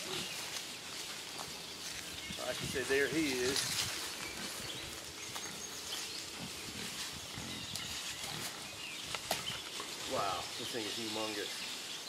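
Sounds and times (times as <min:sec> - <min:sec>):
footsteps on dry leaves: 0:00.0 - 0:12.0
hogs grunting: 0:02.4 - 0:09.4.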